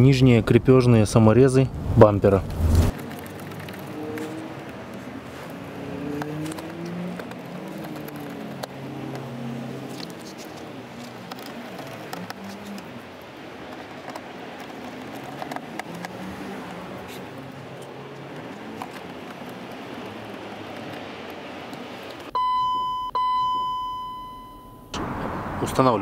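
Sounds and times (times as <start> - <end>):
electronic chime beeps: 22.3 - 25.0.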